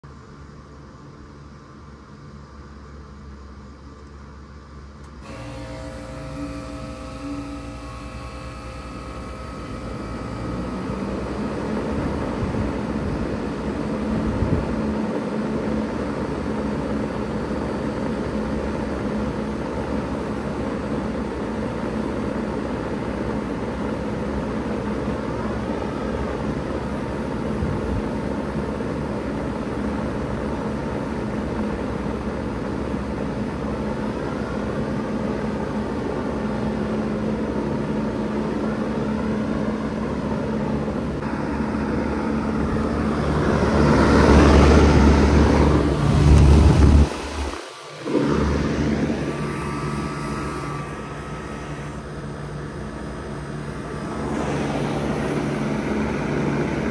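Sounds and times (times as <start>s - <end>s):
compressor hum: 0.0s - 56.9s
condenser fan whoosh: 0.0s - 56.9s.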